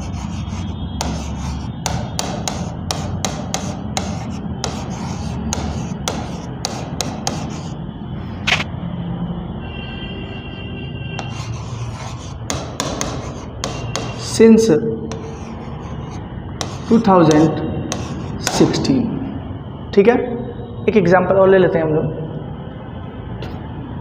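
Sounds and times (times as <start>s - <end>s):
pen tapping on glass board: 1.0s - 7.7s, 11.2s - 14.4s, 15.1s - 15.6s, 16.6s - 18.8s.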